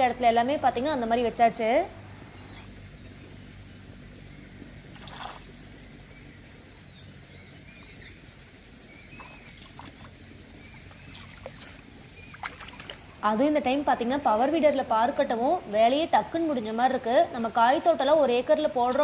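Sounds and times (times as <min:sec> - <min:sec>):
low outdoor background noise: 0:00.0 - 0:19.0
small birds chirping: 0:00.0 - 0:19.0
splash: 0:04.9 - 0:05.5, 0:10.8 - 0:13.2.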